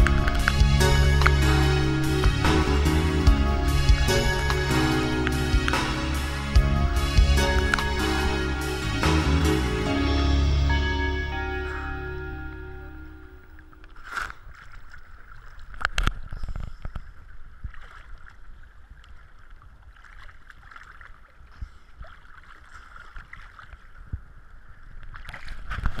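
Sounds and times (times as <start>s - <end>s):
sea water sloshing and splashing: 13.6s - 26.0s.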